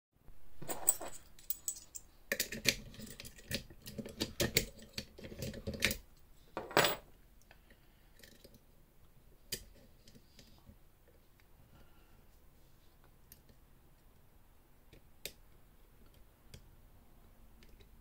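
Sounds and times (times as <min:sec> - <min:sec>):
metal tools clinking: 0:00.6 - 0:02.0, 0:06.6 - 0:07.1.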